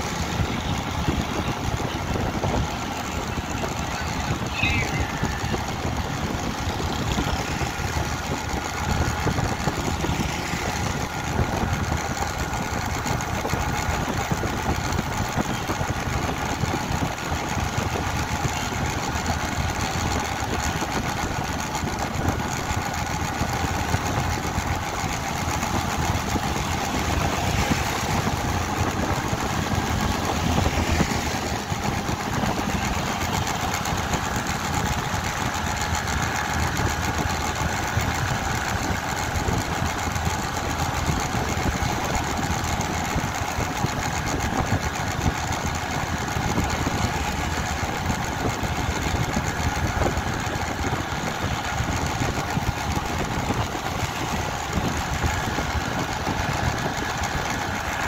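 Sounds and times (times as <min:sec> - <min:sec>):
rushing road noise: 0:00.0 - 0:58.0
vehicle engine running: 0:00.0 - 0:58.0.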